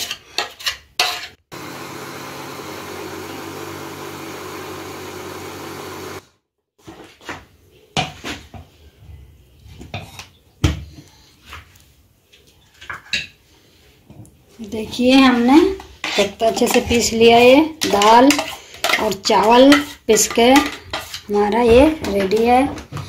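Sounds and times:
mixer grinder motor running: 1.5 - 6.2.

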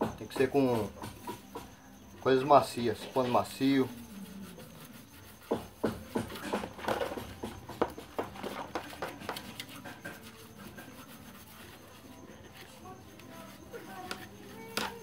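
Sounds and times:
cloth scrubbing plastic in water: 2.8 - 15.0.

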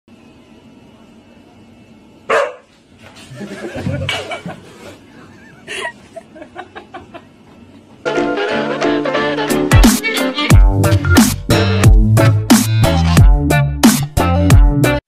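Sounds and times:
person laughing: 3.2 - 7.8
electronic intro music: 8.1 - 15.0.

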